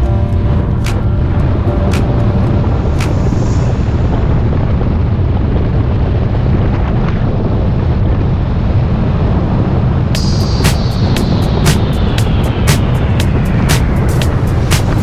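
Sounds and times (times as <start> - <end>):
high falling tone: 0.0 - 5.3, 10.2 - 15.0
wind buffeting microphone: 0.0 - 15.0
sharp ticks: 0.8 - 3.4, 10.2 - 15.0.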